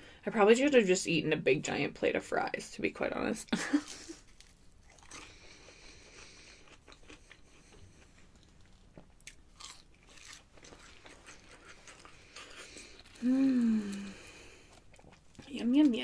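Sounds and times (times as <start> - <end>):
person crunching fries: 4.2 - 15.2.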